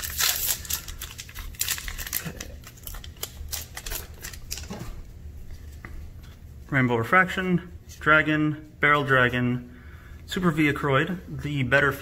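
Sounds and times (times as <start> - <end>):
foil wrapper crinkling: 0.0 - 5.0.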